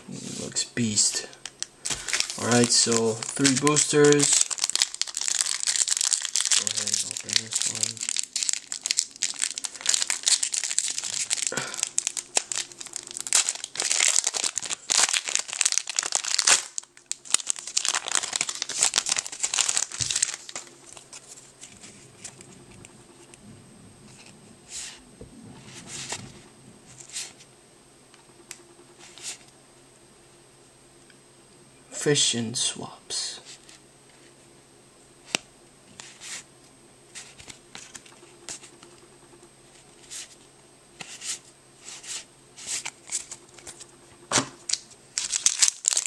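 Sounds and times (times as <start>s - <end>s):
cards rustling softly: 0.1s - 23.4s, 25.6s - 27.5s, 35.2s - 39.0s, 39.6s - 43.9s
foil wrapper crinkling: 1.4s - 23.3s, 42.6s - 46.0s.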